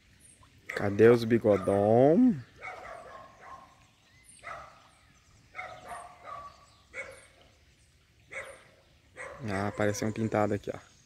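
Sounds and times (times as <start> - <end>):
dog barking: 0.7 - 0.9, 1.5 - 1.9, 2.6 - 3.7, 4.4 - 4.8, 5.6 - 7.3, 8.3 - 10.2.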